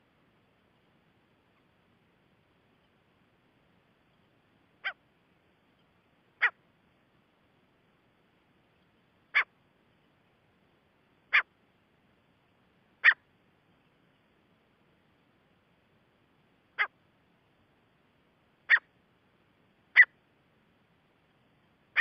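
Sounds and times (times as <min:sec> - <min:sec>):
francolin calling: 0:04.0 - 0:05.1, 0:05.7 - 0:06.6, 0:08.7 - 0:09.6, 0:11.2 - 0:11.6, 0:13.0 - 0:13.3, 0:16.7 - 0:17.0, 0:18.6 - 0:18.9, 0:19.9 - 0:20.2.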